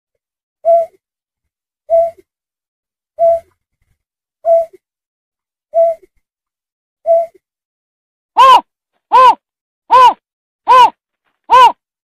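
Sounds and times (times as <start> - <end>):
bird lure call hooting: 8.4 - 10.9.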